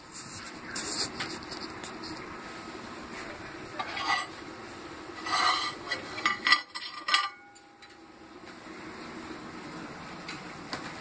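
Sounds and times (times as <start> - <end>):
metal spinner clinking on glass: 5.2 - 7.9.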